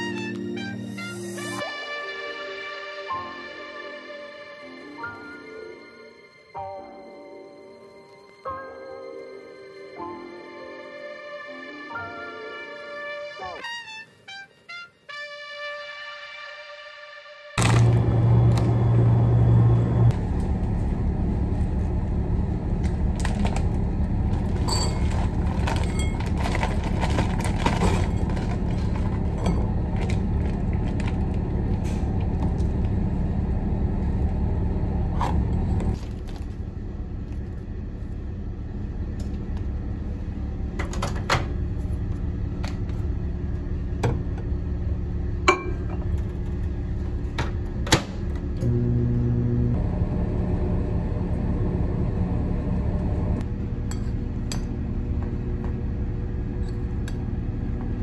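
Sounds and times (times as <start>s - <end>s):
ship machinery rumble and hum: 17.6s - 58.0s
food packets rustling and clicking: 22.8s - 32.9s.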